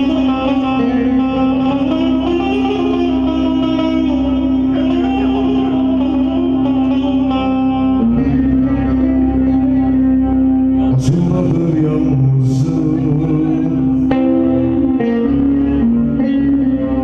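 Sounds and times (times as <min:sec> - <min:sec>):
electronic keyboard melody: 0:00.0 - 0:17.0
man singing into microphone: 0:10.8 - 0:16.4.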